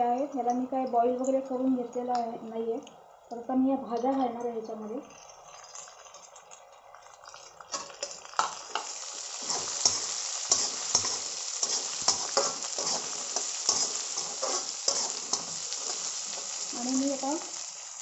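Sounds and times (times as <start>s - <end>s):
vegetables sizzling in hot oil: 4.6s - 18.0s
metal spatula scraping pan: 9.3s - 16.7s.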